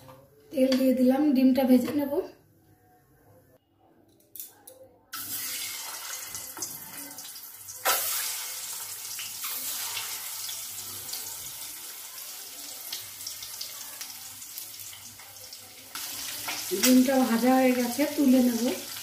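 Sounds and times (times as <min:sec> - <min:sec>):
eggs sizzling in hot oil: 0:05.2 - 0:19.0.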